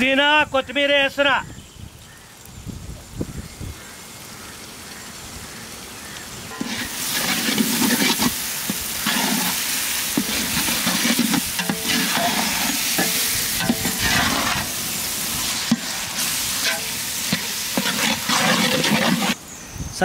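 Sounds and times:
food sizzling in oil: 1.6s - 19.5s
metal ladle scraping a pot: 6.5s - 19.4s.

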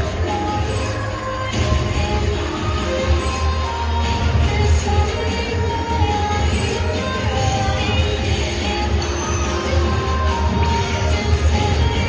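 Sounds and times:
music over loudspeakers: 0.0s - 12.0s.

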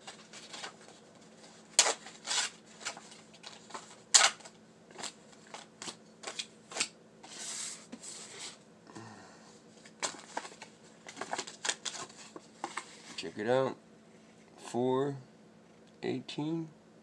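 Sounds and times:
paper tickets crackling and rustling: 0.0s - 7.6s, 9.8s - 13.4s.

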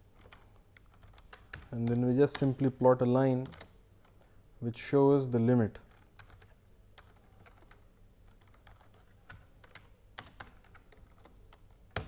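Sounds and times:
keyboard typing: 0.1s - 4.3s, 5.8s - 12.0s.

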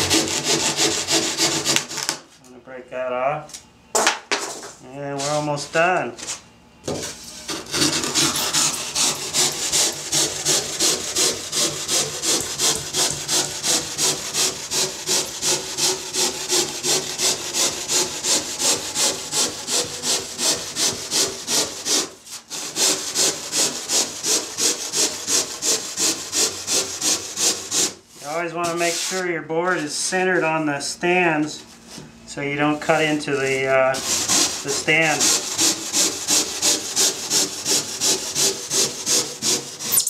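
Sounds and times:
handsaw cutting foam: 0.0s - 2.2s, 7.4s - 29.3s, 33.9s - 40.0s.

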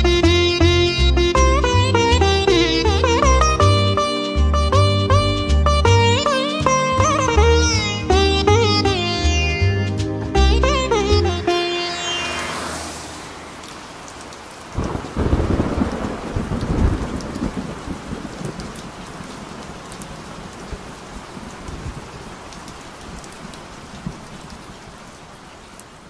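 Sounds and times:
heavy rain falling: 0.0s - 8.6s, 11.6s - 26.0s
thunder rumbling: 13.1s - 22.2s.

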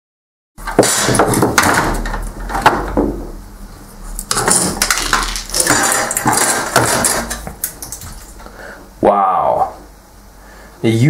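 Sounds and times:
metal plate and gears rattling: 4.3s - 8.4s.

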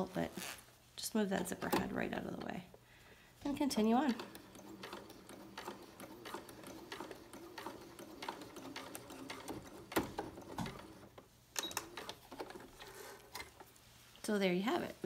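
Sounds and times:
sewing machine stitching: 3.6s - 13.4s.

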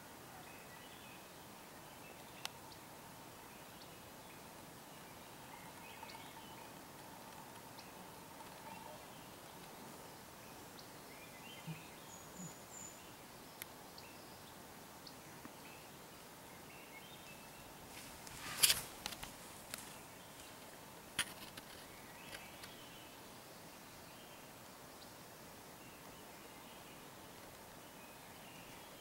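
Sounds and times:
faint bird chirps: 0.3s - 18.9s.

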